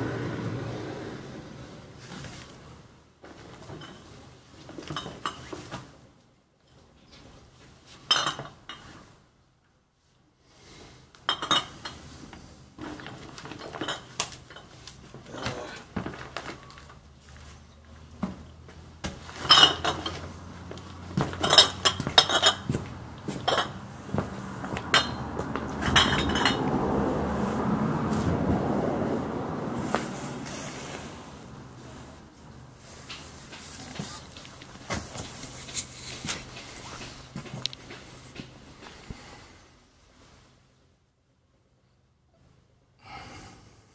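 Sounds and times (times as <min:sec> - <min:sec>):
glass bottles clinking: 0:11.3 - 0:12.0, 0:13.0 - 0:14.7, 0:19.3 - 0:20.3, 0:21.2 - 0:22.8, 0:23.4 - 0:23.8, 0:24.9 - 0:25.2, 0:25.8 - 0:26.7
rushing noise: 0:24.0 - 0:32.8.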